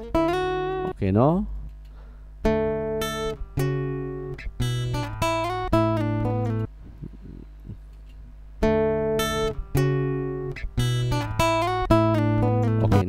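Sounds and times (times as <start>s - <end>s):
plucked guitar notes and chords: 0.0s - 1.0s, 2.4s - 7.2s, 8.6s - 13.0s.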